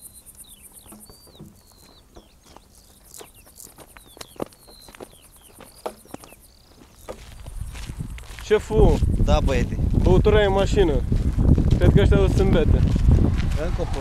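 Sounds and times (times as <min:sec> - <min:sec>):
bird chirps: 0:00.0 - 0:09.3
insects chirring: 0:00.0 - 0:13.2
footsteps on dirt track: 0:00.5 - 0:14.0.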